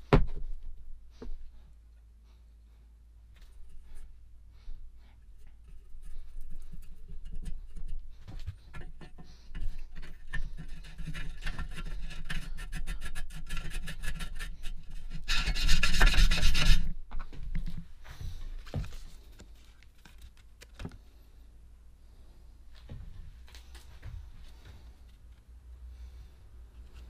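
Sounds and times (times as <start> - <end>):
rasping rub of plunger seal: 5.2 - 16.9.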